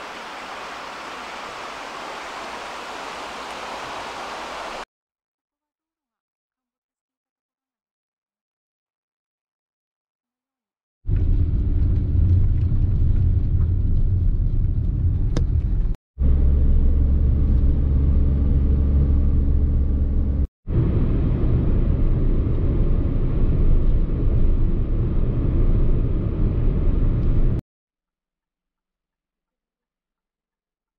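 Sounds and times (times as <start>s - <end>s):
car engine and road noise: 0.0s - 4.8s, 11.1s - 27.6s.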